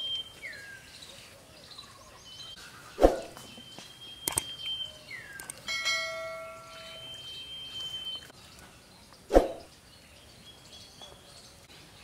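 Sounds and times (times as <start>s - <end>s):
bell ding: 5.7s - 7.2s
falling whoosh: 9.3s - 9.7s.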